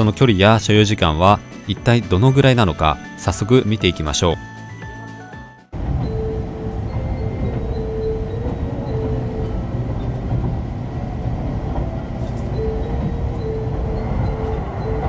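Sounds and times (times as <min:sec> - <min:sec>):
train rumbling at speed: 0:05.8 - 0:15.0.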